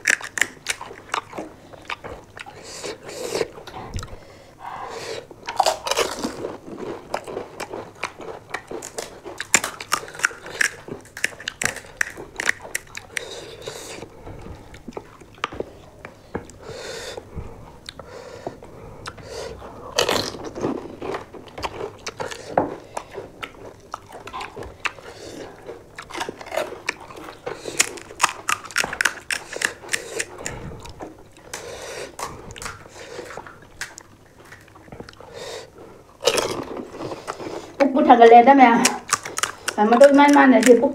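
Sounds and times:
chewing: 0:00.0 - 0:37.8, 0:38.8 - 0:40.9
crisp shells crunching: 0:05.5 - 0:14.0, 0:24.6 - 0:34.8, 0:38.8 - 0:40.9.

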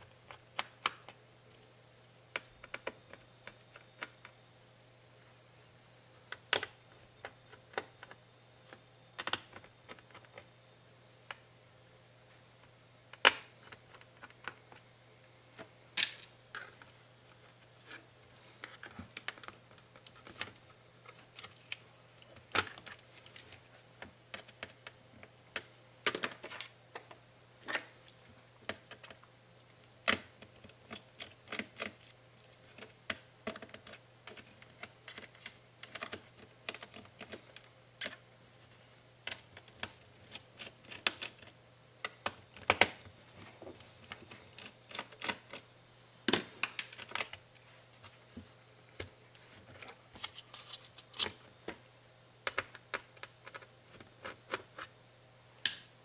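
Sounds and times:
faint low hum: 0:00.0 - 0:56.0
laptop parts clicking and rattling: 0:02.3 - 0:04.4, 0:09.2 - 0:10.5, 0:18.6 - 0:27.9, 0:28.6 - 0:29.2, 0:30.0 - 0:45.7, 0:46.3 - 0:47.4, 0:52.4 - 0:54.9.

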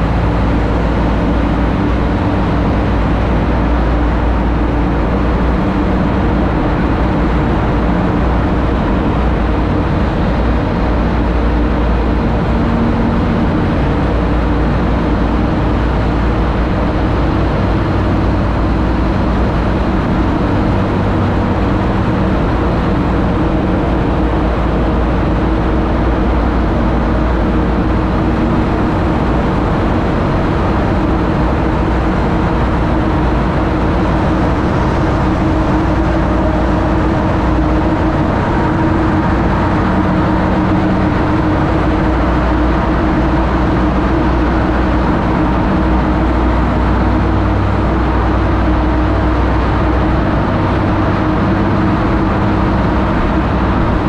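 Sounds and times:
road and wind noise: 0:00.0 - 0:54.0
truck low rumble: 0:00.0 - 0:54.0.

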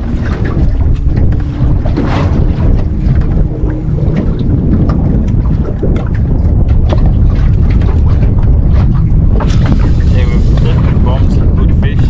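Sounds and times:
wind buffeting microphone: 0:00.0 - 0:12.0.

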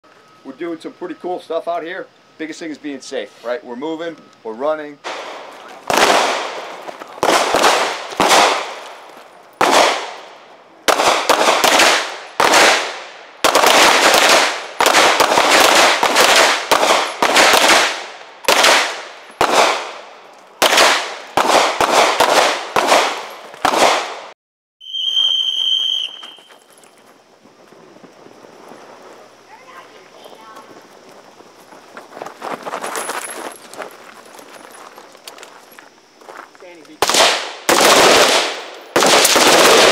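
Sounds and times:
gunshots: 0:05.0 - 0:09.0, 0:09.6 - 0:10.3, 0:10.9 - 0:24.3, 0:37.0 - 0:39.9.

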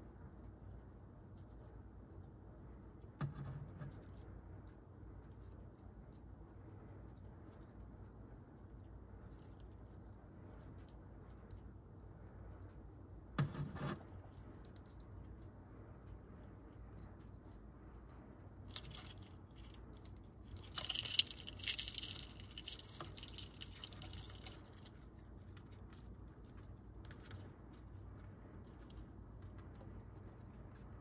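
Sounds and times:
beetles scratching: 0:13.4 - 0:31.0.

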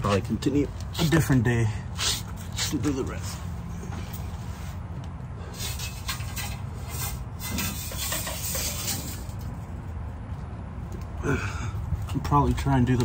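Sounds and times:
fuel line scraping underbody: 0:00.0 - 0:10.3.

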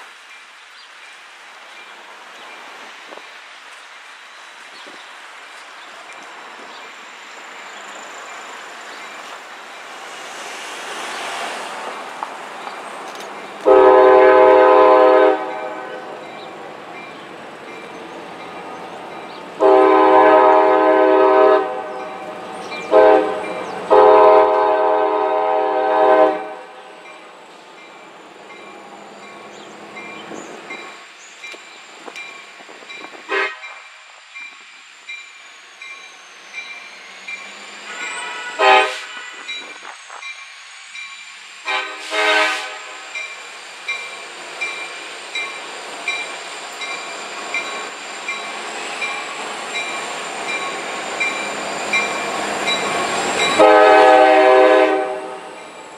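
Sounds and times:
train rumbling: 0:00.0 - 0:55.9
locomotive air horn: 0:13.6 - 0:16.2, 0:19.6 - 0:22.1, 0:22.9 - 0:26.8, 0:33.3 - 0:33.8, 0:37.8 - 0:39.6, 0:41.6 - 0:43.1, 0:52.8 - 0:55.6.

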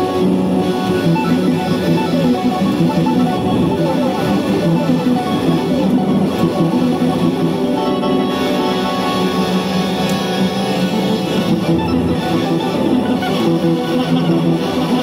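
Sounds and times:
electric guitar through effects: 0:00.0 - 0:15.0.

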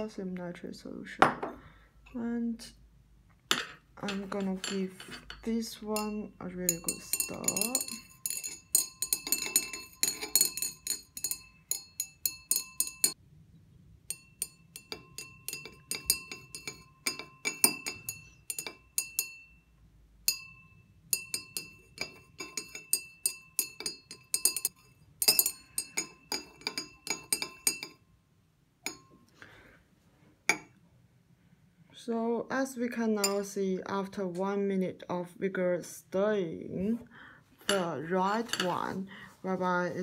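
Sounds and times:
stirring rod clinking against glass: 0:03.5 - 0:13.2, 0:14.1 - 0:28.0, 0:28.8 - 0:29.3, 0:30.5 - 0:30.7, 0:33.2 - 0:33.5, 0:37.7 - 0:38.9.

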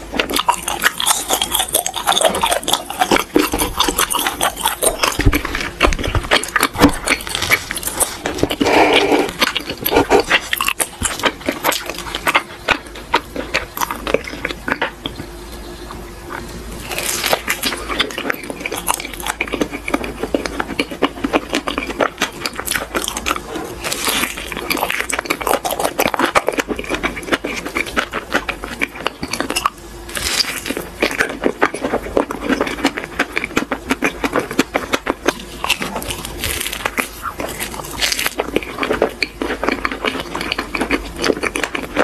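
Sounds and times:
biting into soft food: 0:00.0 - 0:42.0
wet sticky chewing: 0:00.0 - 0:42.0.

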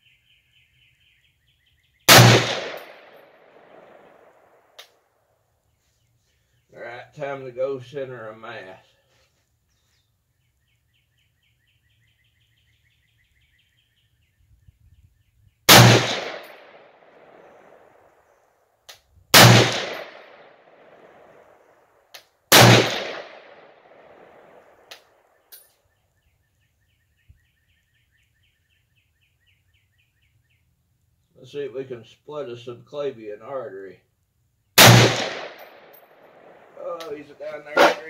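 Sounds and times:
rifle shots with echo: 0:02.1 - 0:04.7, 0:15.7 - 0:18.0, 0:19.3 - 0:21.7, 0:22.5 - 0:24.9, 0:34.8 - 0:36.8.

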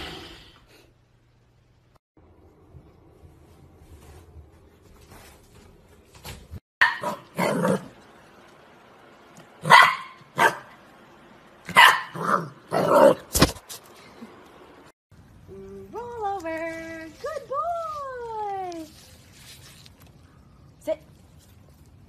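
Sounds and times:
puppy barking: 0:06.8 - 0:07.8, 0:09.6 - 0:10.8, 0:11.7 - 0:13.0.

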